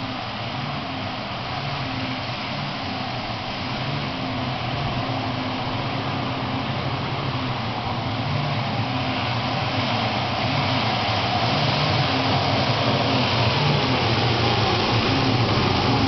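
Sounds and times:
go-kart engines droning: 0.0 - 16.0.

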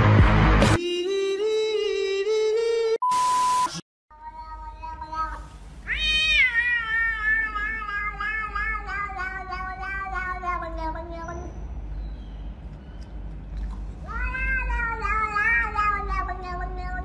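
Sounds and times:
short steady beep: 3.0 - 3.8
cat meowing: 4.2 - 11.6, 14.0 - 17.0.

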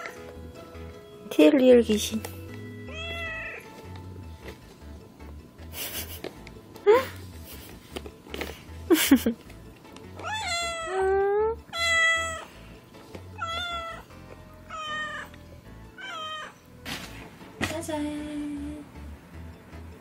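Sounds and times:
cat meowing: 2.9 - 3.7, 10.2 - 12.5, 13.4 - 15.3, 16.0 - 16.6.

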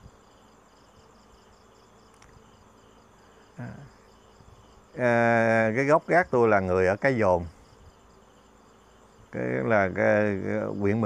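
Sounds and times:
insects chirping: 0.0 - 11.0.

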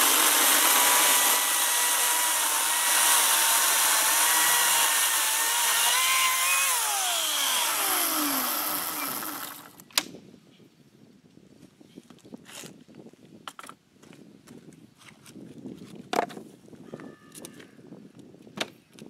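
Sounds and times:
battery chainsaw cutting log: 0.0 - 9.8.

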